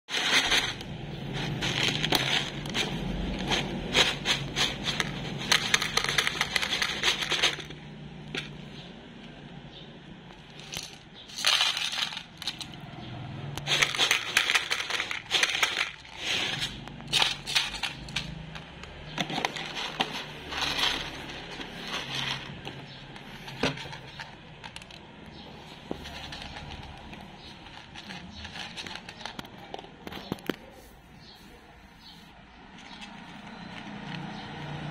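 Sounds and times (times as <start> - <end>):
cat crunching kibble: 0.1 - 8.6, 25.8 - 30.6, 32.7 - 34.9
kibble rattling into plastic tub: 0.1 - 8.6, 10.4 - 12.8, 13.6 - 30.6
pellets clicking against plastic: 0.1 - 8.8, 10.3 - 12.9, 13.6 - 30.7.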